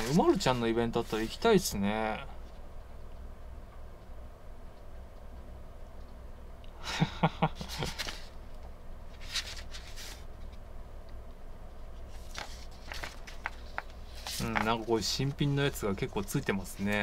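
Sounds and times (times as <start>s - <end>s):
paper rustling: 0.0s - 1.4s, 7.6s - 8.4s, 9.1s - 10.6s, 12.1s - 17.0s
low steady hum: 0.0s - 17.0s.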